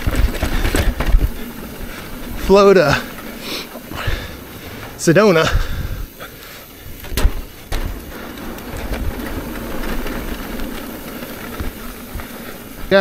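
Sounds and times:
bike rattling: 0:00.0 - 0:13.0
bike tyres rumbling: 0:00.0 - 0:13.0
wheels knocking on rocks: 0:00.0 - 0:13.0.

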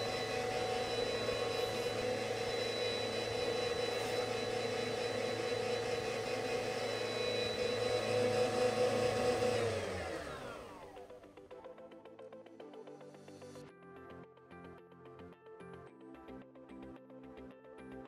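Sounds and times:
homogenizer motor whine: 0:00.0 - 0:11.1.

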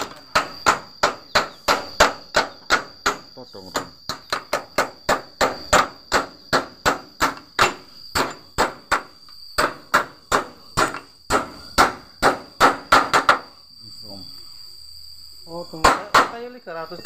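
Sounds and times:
hammer striking metal pin: 0:00.0 - 0:13.4.

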